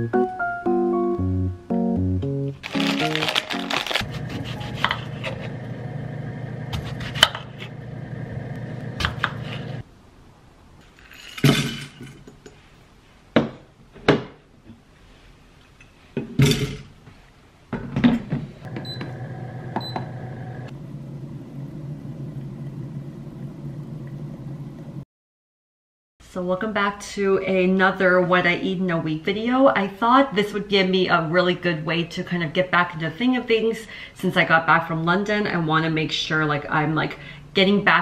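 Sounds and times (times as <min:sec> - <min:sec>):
electric tea maker boiling water: 0:04.1 - 0:09.8, 0:18.7 - 0:25.0.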